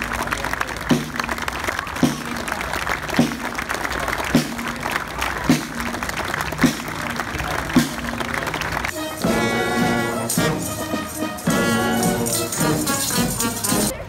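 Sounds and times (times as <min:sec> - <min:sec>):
brass band playing chords: 0:00.0 - 0:14.0
crowd clapping and cheering: 0:00.0 - 0:14.0
marching snare drums: 0:00.8 - 0:13.9
tambourines: 0:09.1 - 0:13.9.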